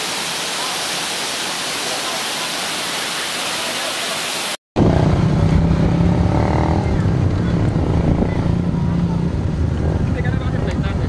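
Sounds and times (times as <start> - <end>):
waterfall rushing: 0.0 - 4.6.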